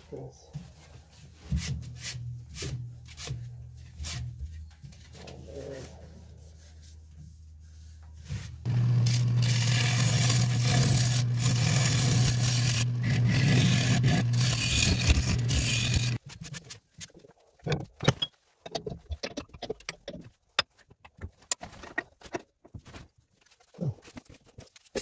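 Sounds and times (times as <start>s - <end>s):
turning tool scraping wood: 8.2s - 20.2s
wood lathe drone: 8.7s - 16.2s.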